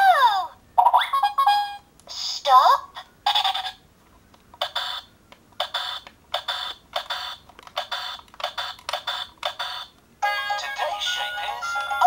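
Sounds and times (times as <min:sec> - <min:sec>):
toy electronic sound effects: 0:00.8 - 0:02.4, 0:04.6 - 0:12.0.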